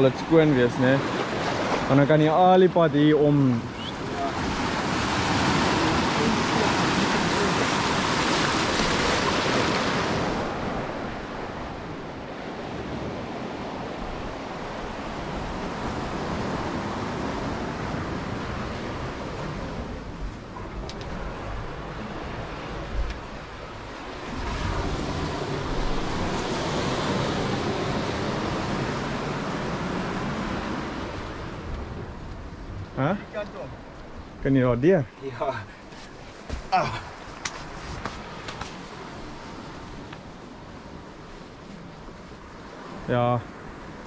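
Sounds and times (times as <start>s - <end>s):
small waves breaking: 0.0s - 34.4s, 35.1s - 44.0s
wind rumble on microphone: 2.9s - 34.5s.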